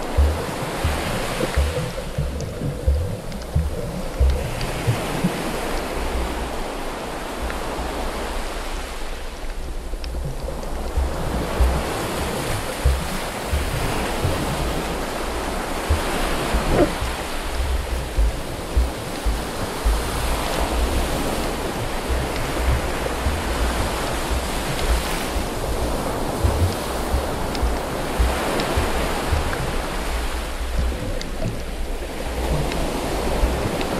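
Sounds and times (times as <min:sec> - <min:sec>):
low thumps of water on housing: 0:00.0 - 0:08.5, 0:09.5 - 0:33.9
muffled underwater rushing water: 0:00.0 - 0:33.9.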